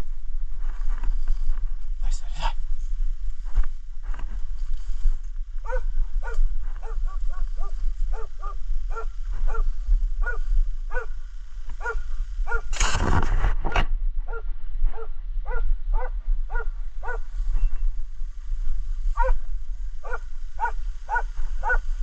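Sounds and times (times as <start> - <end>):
hound baying: 5.6 - 11.2, 11.8 - 12.7, 14.3 - 17.3, 19.2 - 19.4, 20.0 - 21.9.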